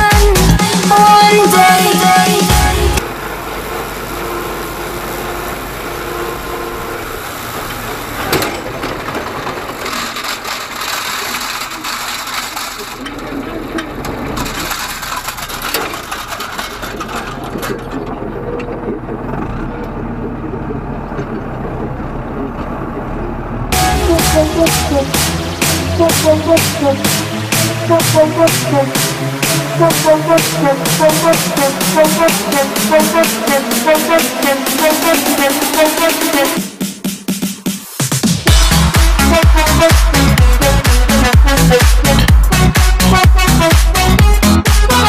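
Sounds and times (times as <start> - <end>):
electronic music: 0.0 - 3.2, 23.7 - 45.0
tractor engine running: 0.0 - 45.0
mower cutting grass: 0.3 - 21.2, 21.8 - 36.8, 38.2 - 45.0.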